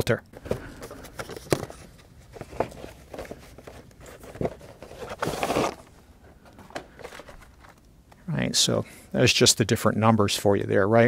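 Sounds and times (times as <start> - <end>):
cardboard scraping on filter: 0.5 - 7.8.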